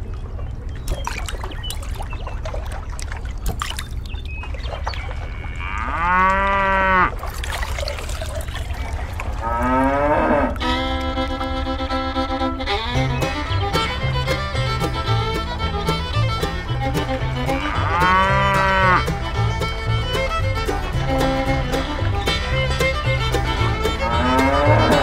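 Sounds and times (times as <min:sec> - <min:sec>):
cow mooing: 0:05.3 - 0:07.2, 0:09.4 - 0:12.3, 0:17.5 - 0:19.1, 0:24.0 - 0:25.0
fiddle music: 0:10.3 - 0:25.0
steady low rumble: 0:10.6 - 0:25.0.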